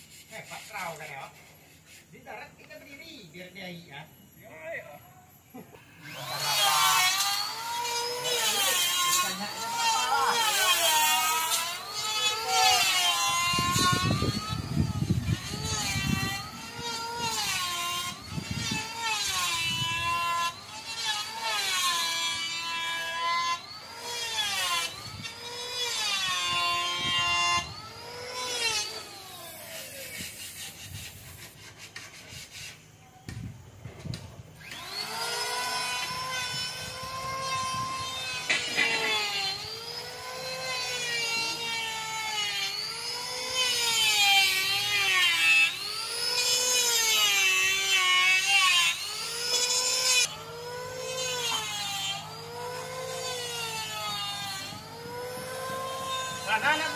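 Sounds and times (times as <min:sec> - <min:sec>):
power tool whining into wood: 0:05.5 - 0:32.9, 0:33.9 - 0:56.9.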